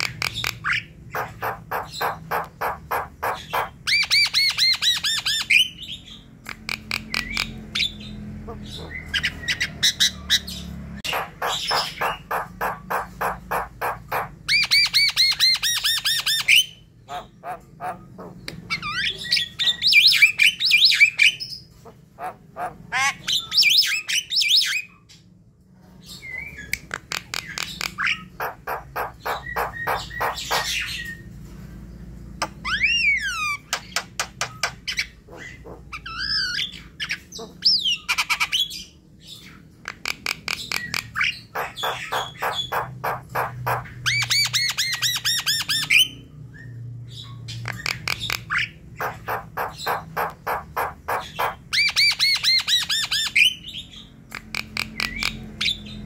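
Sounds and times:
bird harsh chattering: 0.0s - 21.6s, 26.6s - 31.2s, 39.9s - 46.2s, 47.6s - 56.0s.

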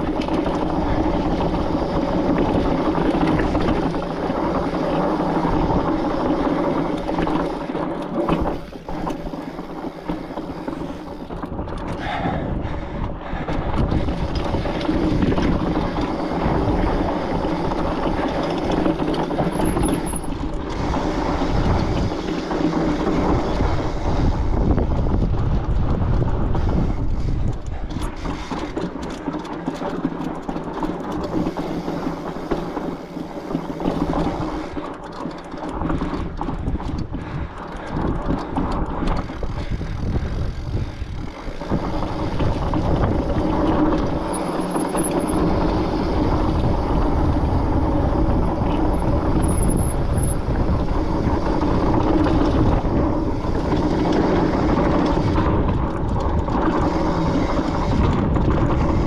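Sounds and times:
bike tyres rumbling and rattling: 0.0s - 59.0s
wind on microphone: 8.2s - 28.8s, 35.8s - 59.0s.

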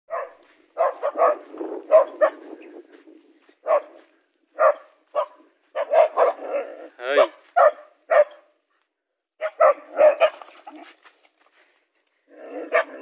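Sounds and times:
dogs barking: 0.1s - 2.8s, 3.5s - 8.6s, 9.4s - 10.8s, 12.4s - 13.0s
low growling: 6.3s - 7.1s.

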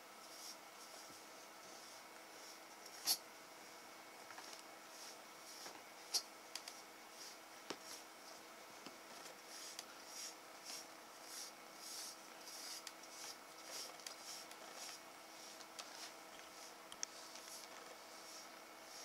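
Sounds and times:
brush swishing through fur: 4.8s - 8.5s, 9.2s - 19.0s.

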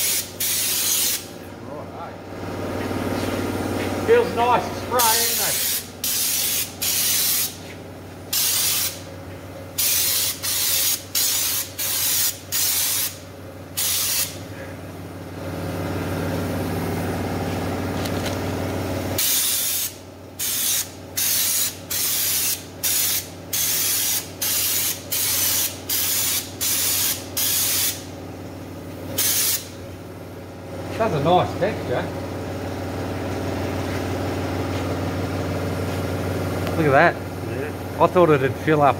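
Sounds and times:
spray gun hissing in bursts: 0.0s - 1.3s, 4.9s - 7.6s, 8.3s - 9.0s, 9.8s - 13.2s, 13.8s - 14.4s, 19.2s - 28.0s, 29.2s - 29.7s
air compressor humming: 0.0s - 38.9s.

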